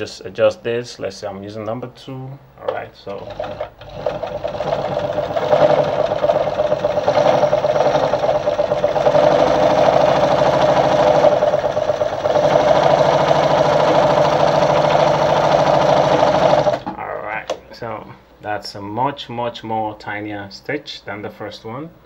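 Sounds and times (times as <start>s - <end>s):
sewing machine stitching: 3.0s - 17.0s.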